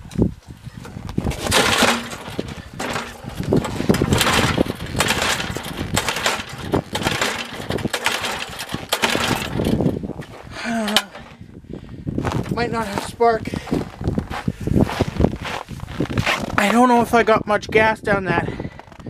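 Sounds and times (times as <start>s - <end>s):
recoil starter rope whirr: 1.3s - 10.0s.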